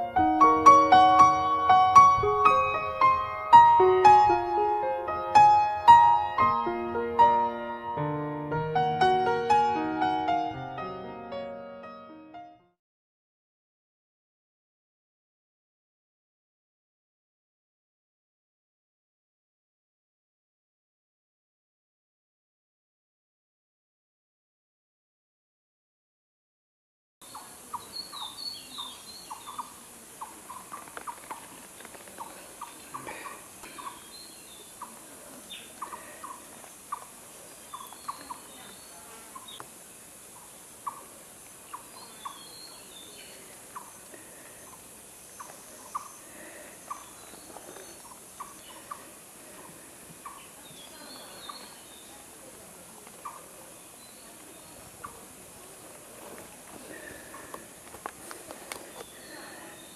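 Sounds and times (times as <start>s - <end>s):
steady high hiss: 0.0s - 11.6s, 27.3s - 59.9s
higher twittering calls: 27.2s - 56.0s, 56.8s - 59.9s.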